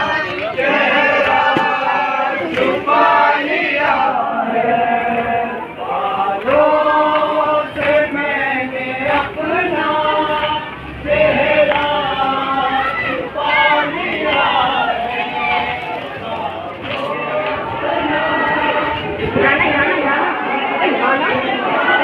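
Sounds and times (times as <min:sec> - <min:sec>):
men chanting a mourning chant: 0:00.0 - 0:22.0.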